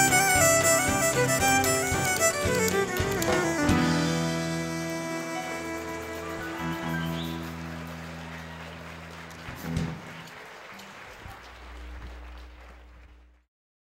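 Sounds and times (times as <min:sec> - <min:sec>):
audience applauding: 0:04.7 - 0:13.5.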